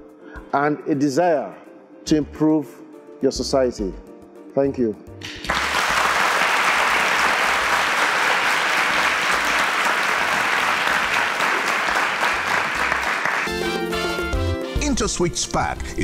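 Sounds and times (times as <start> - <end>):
audience applause: 5.2 - 14.2.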